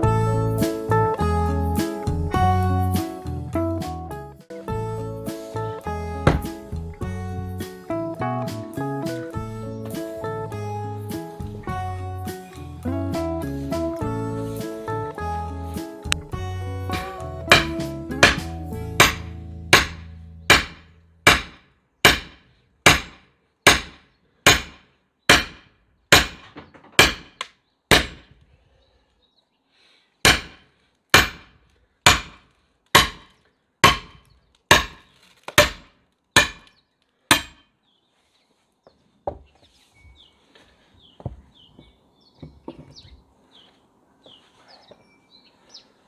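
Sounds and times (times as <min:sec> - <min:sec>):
sledgehammer striking axe head: 0:06.2 - 0:06.6, 0:17.5 - 0:28.4, 0:30.2 - 0:37.6.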